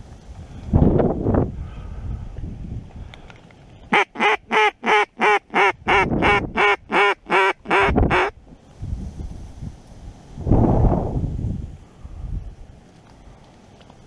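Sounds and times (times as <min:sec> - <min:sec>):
wind noise on microphone: 0:00.0 - 0:13.4
duck quacking: 0:03.9 - 0:08.4.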